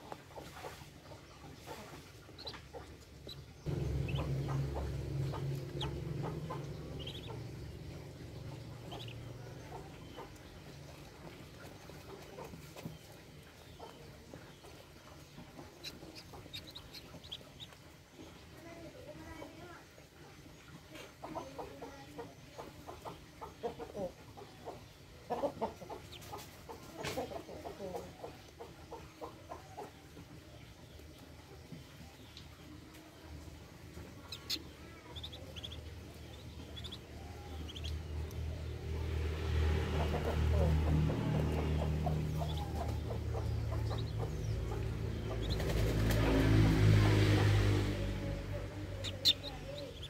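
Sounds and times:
ducklings peeping: 0.0 - 50.0
loud low hum: 3.2 - 12.0, 33.9 - 50.0.

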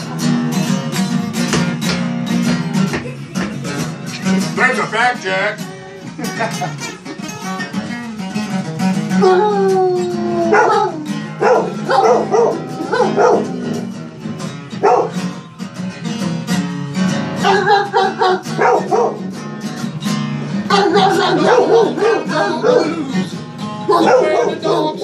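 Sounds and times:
guitar playing: 0.0 - 25.0
dog howling: 9.1 - 14.0, 14.8 - 15.2, 17.4 - 19.3, 20.7 - 23.3, 23.9 - 25.0.

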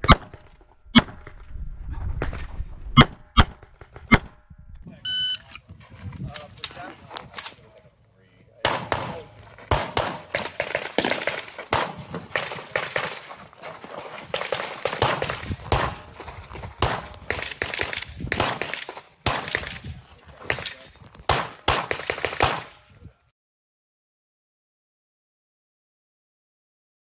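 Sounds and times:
rapid pistol shots with echo: 8.6 - 13.5, 14.2 - 22.9.

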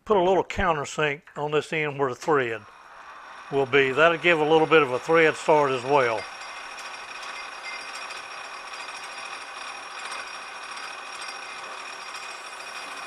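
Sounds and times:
faint high whine: 1.6 - 8.0
metal lathe humming: 2.6 - 13.0.

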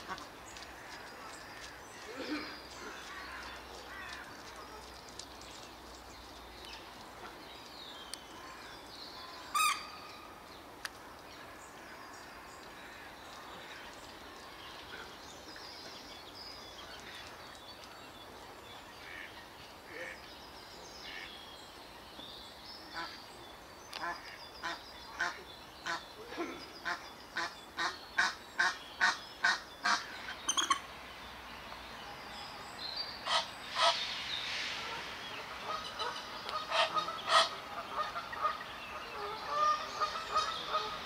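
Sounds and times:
small birds chirping: 0.0 - 34.6
steady background hiss: 0.0 - 41.0.

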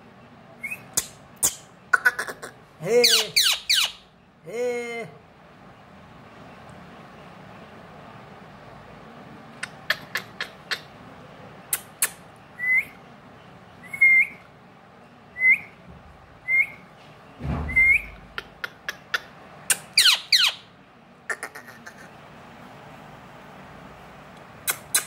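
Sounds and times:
parakeet squawks: 1.4 - 4.0, 17.9 - 20.7, 21.3 - 22.1
parakeet rising whistles: 13.8 - 14.4, 15.4 - 15.8, 16.4 - 16.8, 17.7 - 18.1
dull thump: 17.4 - 18.1.

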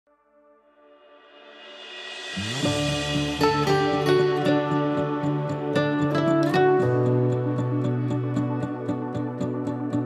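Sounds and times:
plucked notes: 2.6 - 10.0.

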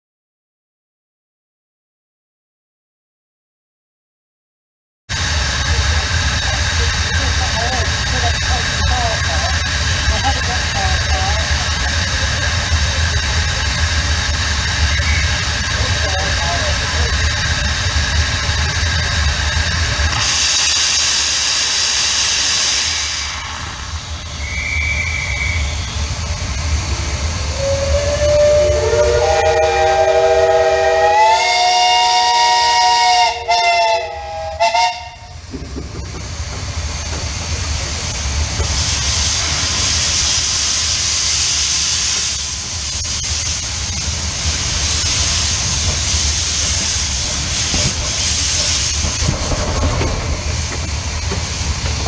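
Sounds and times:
steam hissing: 5.1 - 52.0
steam whistles chord: 27.5 - 35.4.

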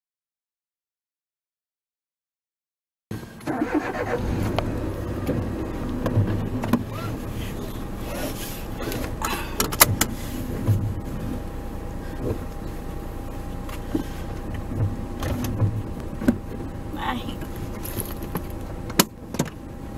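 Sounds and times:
seat belt rustling: 3.5 - 11.4, 17.1 - 19.6
steady low hum: 4.0 - 19.9
seat belt clicks: 8.1 - 10.2, 17.4 - 19.6.

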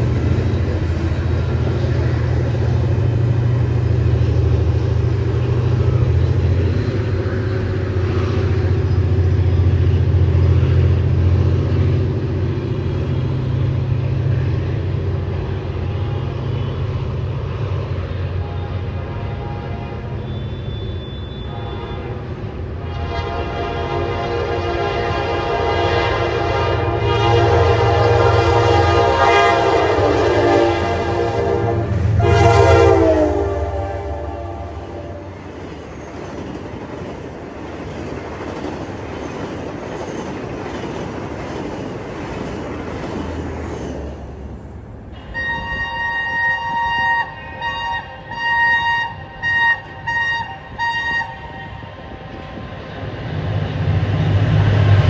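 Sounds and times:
locomotive engine rumble: 0.0 - 23.0, 25.0 - 48.4, 49.1 - 55.0
train wheels rumbling over rails: 0.0 - 55.0
locomotive horn: 15.6 - 17.2, 18.0 - 35.4, 45.1 - 52.8
short horn blasts: 18.3 - 35.3, 45.2 - 52.1.

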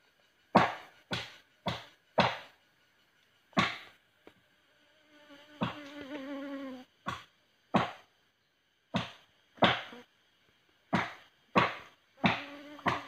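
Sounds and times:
insect buzzing: 0.0 - 13.0
machete chopping tree trunk: 0.5 - 2.6, 3.6 - 3.9, 7.1 - 8.0, 8.9 - 9.9, 10.9 - 13.0.

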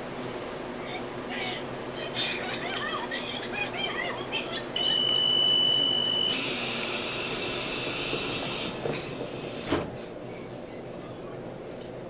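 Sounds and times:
steady high beep: 4.8 - 6.4.

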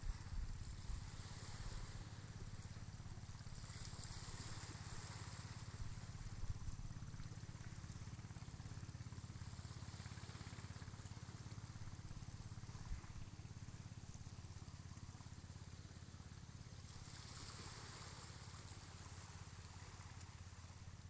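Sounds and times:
low steady rumble: 0.0 - 21.0
small waves washing onto beach: 0.0 - 21.0.

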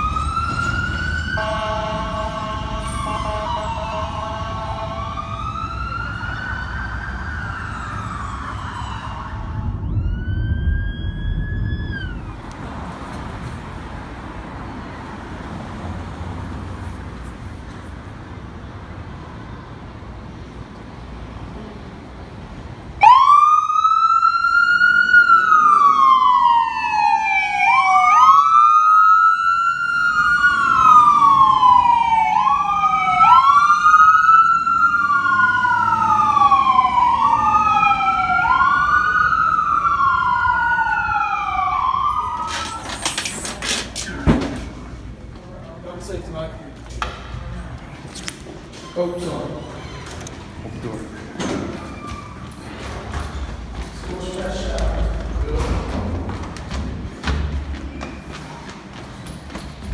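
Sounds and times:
second siren: 0.0 - 12.6, 23.0 - 43.4
emergency vehicle siren wailing: 0.0 - 12.7, 22.9 - 44.2
traffic rumble: 0.0 - 59.9.

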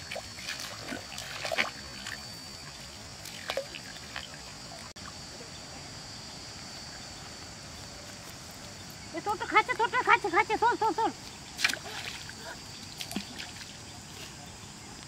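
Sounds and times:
fish splashing in water: 0.0 - 4.4.

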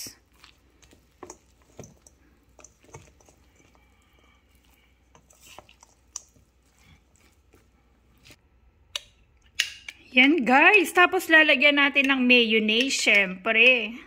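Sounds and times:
spatula stirring meat in bowl: 0.0 - 8.4.

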